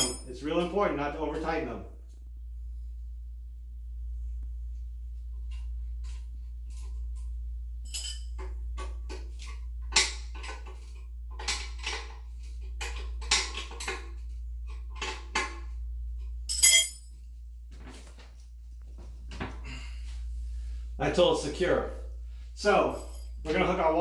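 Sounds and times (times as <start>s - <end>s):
ringing metal clink: 0.0s - 0.3s, 7.9s - 8.3s, 16.5s - 17.0s.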